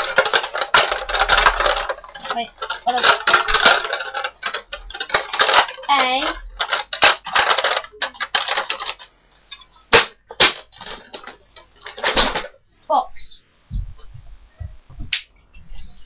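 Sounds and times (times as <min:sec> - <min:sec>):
person speaking: 0:00.0 - 0:09.0.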